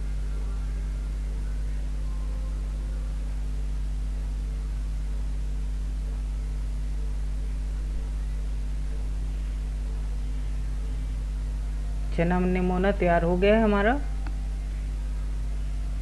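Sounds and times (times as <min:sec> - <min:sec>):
low electrical hum: 0:00.0 - 0:16.0.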